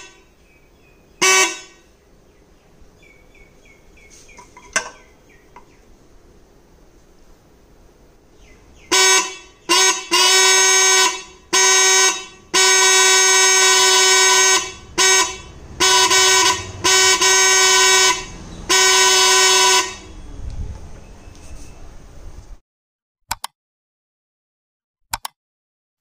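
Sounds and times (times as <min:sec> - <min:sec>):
electric trumpet horn blasts: 0:00.0 - 0:00.3, 0:01.2 - 0:01.9, 0:08.9 - 0:20.2.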